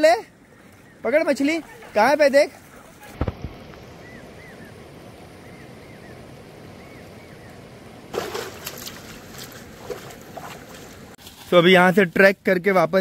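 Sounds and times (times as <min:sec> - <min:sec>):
stream water flowing: 0:00.0 - 0:11.5
splashing in water: 0:08.1 - 0:11.5.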